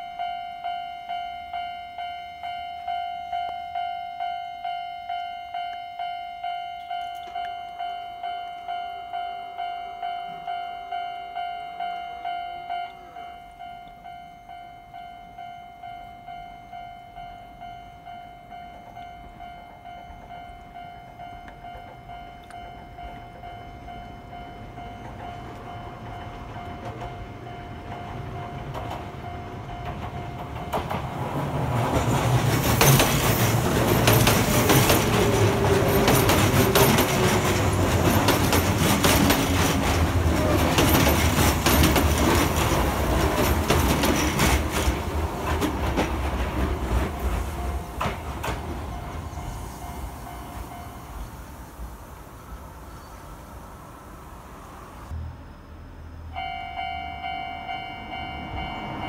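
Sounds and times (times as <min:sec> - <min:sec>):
level crossing warning bell: 0:00.0 - 0:51.6, 0:56.3 - 0:59.0
train rumble: 0:07.6 - 0:59.0
wheels clacking over rail joints: 0:21.4 - 0:50.8.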